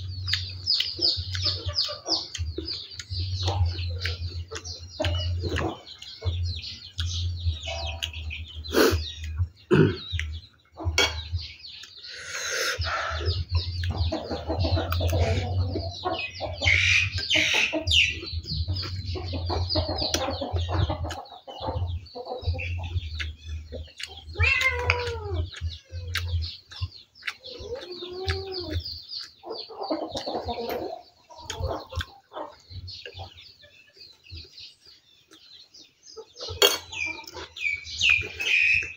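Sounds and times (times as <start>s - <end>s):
chickens clucking: 0.0s - 38.9s
small birds chirping: 0.0s - 38.9s
person chewing: 0.1s - 10.4s, 11.1s - 12.9s, 23.1s - 30.3s, 37.2s - 38.9s.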